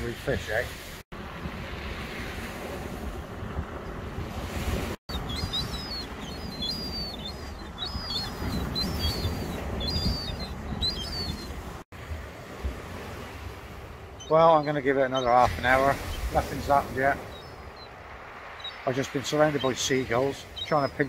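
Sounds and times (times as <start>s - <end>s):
surf rumble: 0.0s - 21.0s
wind: 0.0s - 21.0s
gull begging calls: 5.1s - 11.5s, 14.2s - 17.8s.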